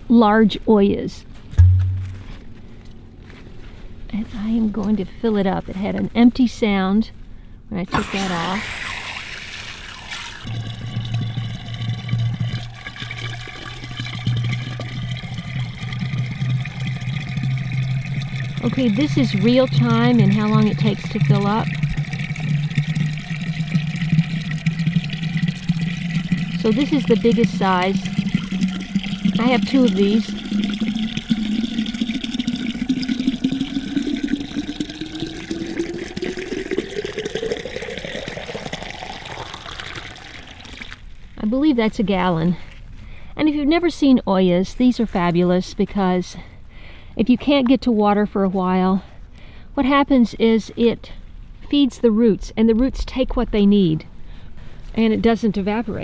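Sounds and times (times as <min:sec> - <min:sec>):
rising filling tone: 0:01.6 - 0:02.6
water pouring into pot: 0:07.9 - 0:41.0.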